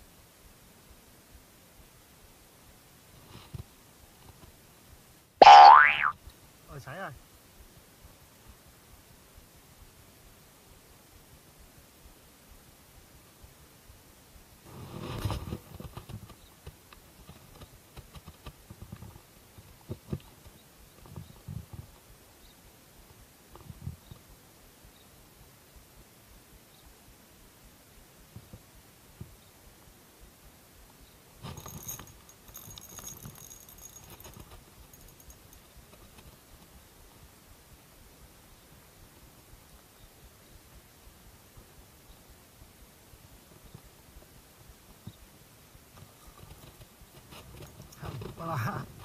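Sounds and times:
rustling and knocking: 31.4 - 36.7.

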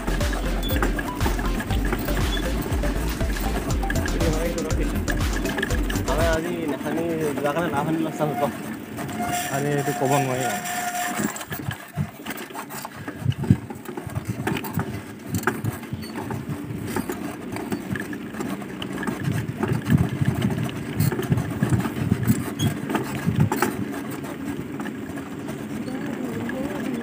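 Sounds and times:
knocks and rattles: 0.0 - 27.0
vehicle ride rumble on road: 0.0 - 27.0
wind over microphone: 13.0 - 17.0, 19.2 - 23.9.

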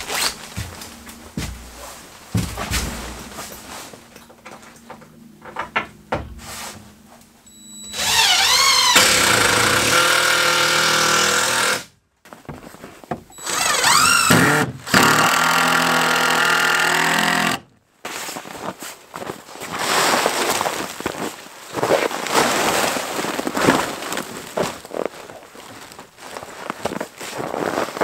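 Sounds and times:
cordless drill whining: 7.5 - 11.9, 13.3 - 17.6.

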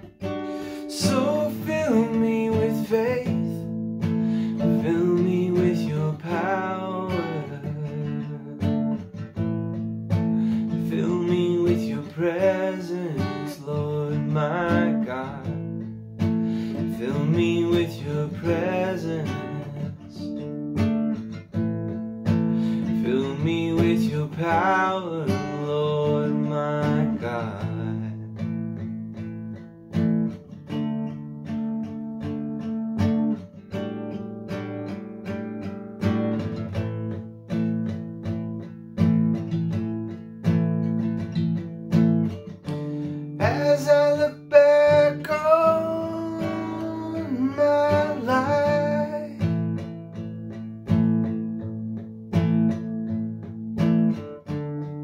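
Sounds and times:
acoustic guitar strumming chords: 0.0 - 55.0
man singing: 0.6 - 3.8, 4.4 - 9.0, 10.5 - 16.0, 16.7 - 20.5, 22.6 - 28.7, 43.0 - 49.8.

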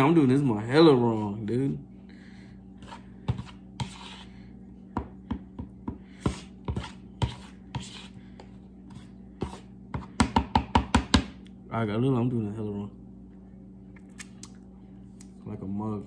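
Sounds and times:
low hum: 11.2 - 16.0.

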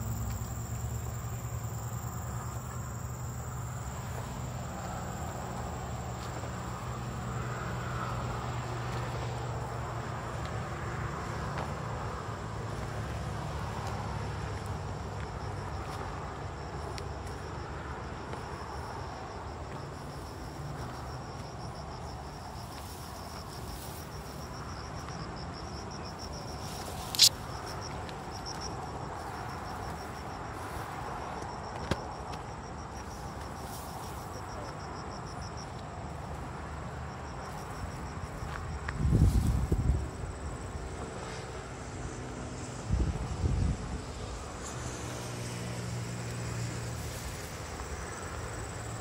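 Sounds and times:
insects trilling: 0.0 - 49.0
sharp click: 27.1 - 27.4.

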